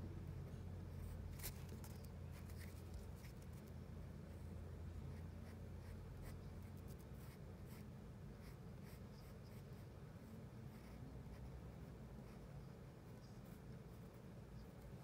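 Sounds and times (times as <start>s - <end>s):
steady low hum: 0.0s - 15.0s
pencil scratching on paper: 5.1s - 15.0s.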